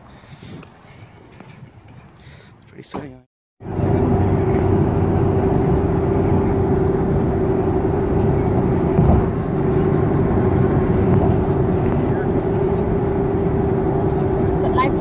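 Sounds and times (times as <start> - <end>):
constant hum: 0.5 - 15.0
car engine and road noise: 2.6 - 15.0
car bump: 8.8 - 9.4.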